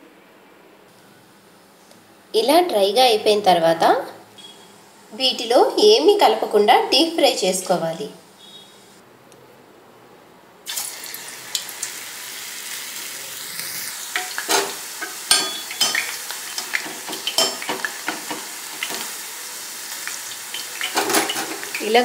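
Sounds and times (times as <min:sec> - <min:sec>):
oil sizzling with pops: 0:10.7 - 0:22.0.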